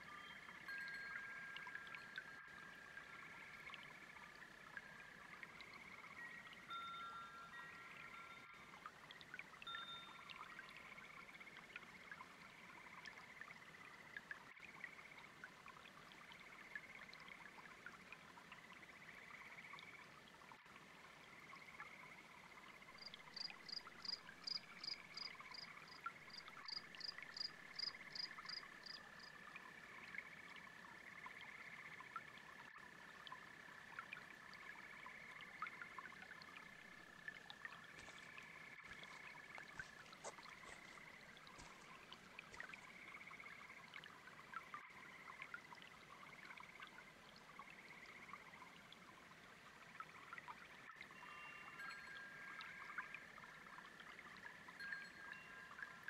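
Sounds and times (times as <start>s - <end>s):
frogs and toads trilling: 0.0s - 15.4s, 16.1s - 56.0s
brook water trickling: 0.0s - 56.0s
insects chirping: 22.9s - 30.2s, 37.8s - 43.8s.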